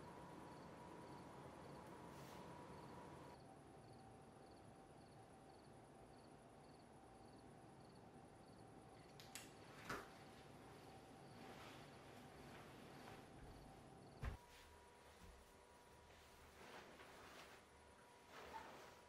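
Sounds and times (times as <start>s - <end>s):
faint high insect-like chirp: 0.0s - 1.9s, 2.6s - 9.2s
small clicks: 9.0s - 9.6s.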